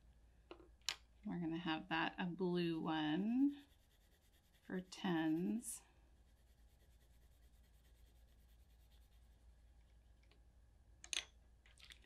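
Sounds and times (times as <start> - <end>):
low steady hum: 0.0 - 12.0
pencil scratching on paper: 2.8 - 9.4.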